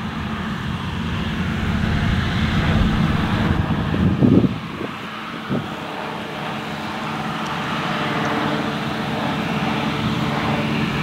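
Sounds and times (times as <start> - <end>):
threshing machinery hum: 0.0 - 5.0
combine harvester engine drone: 0.0 - 11.0.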